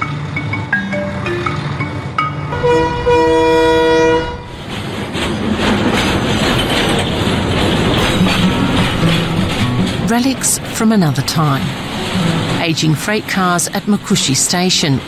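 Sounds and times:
train rumbling past: 0.0s - 15.0s
train horn: 2.5s - 4.6s.

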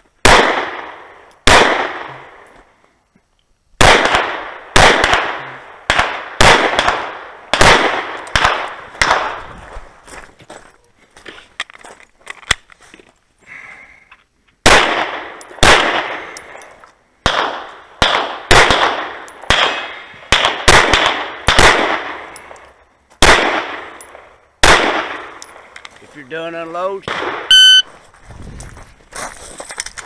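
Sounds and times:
pistol shots with echo: 0.2s - 2.4s, 3.8s - 9.4s, 14.7s - 16.3s, 17.2s - 22.5s, 23.2s - 25.4s, 27.0s - 27.8s.

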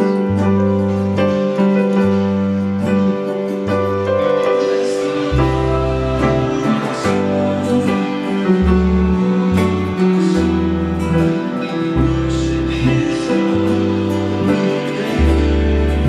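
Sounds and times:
acoustic guitar strumming: 0.0s - 16.0s
keyboard chords: 0.0s - 16.0s
deep bass notes: 5.2s - 16.0s.

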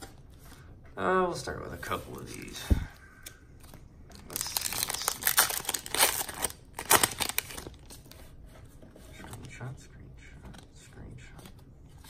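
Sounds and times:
plastic wrapper tearing and crinkling: 4.1s - 8.0s.

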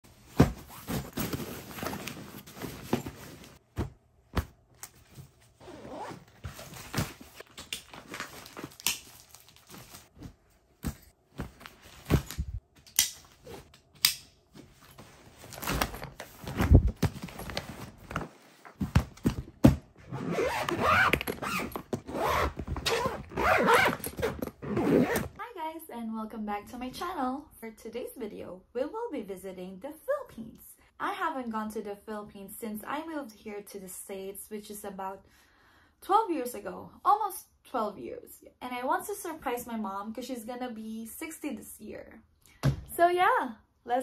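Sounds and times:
fabric packing cubes rustling: 0.1s - 13.7s, 14.5s - 25.4s
suitcase zipper closing: 5.6s - 6.5s, 20.0s - 25.4s.

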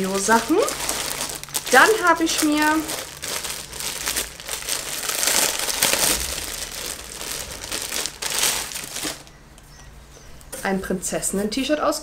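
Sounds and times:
plastic bag crinkling: 0.0s - 9.4s.

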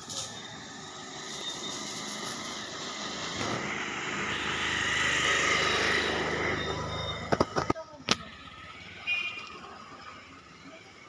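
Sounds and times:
vehicle engine running: 2.0s - 11.0s.

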